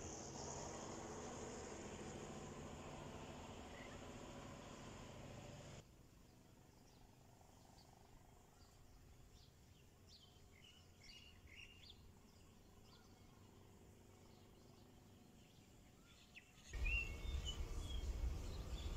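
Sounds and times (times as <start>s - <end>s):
birds chirping: 8.5s - 18.9s.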